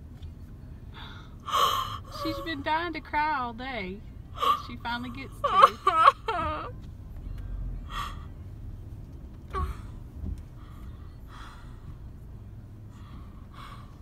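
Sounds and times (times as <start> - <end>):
car interior rumble: 0.0 - 14.0
woman crying with gasping breaths: 1.0 - 2.7, 4.4 - 6.8.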